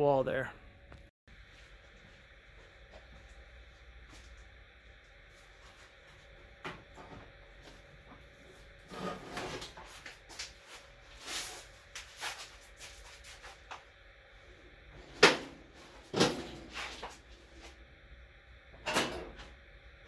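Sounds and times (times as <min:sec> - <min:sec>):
sheet-metal clunks and scrapes: 0:08.9 - 0:09.8.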